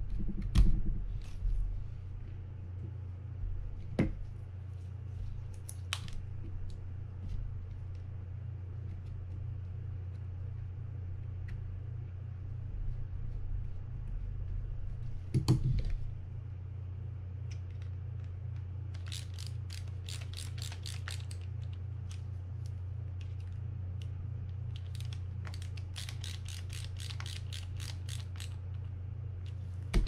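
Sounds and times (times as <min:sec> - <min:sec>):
steady low hum: 0:00.0 - 0:30.0
rapid mechanical clicking: 0:19.0 - 0:22.2, 0:24.7 - 0:28.9.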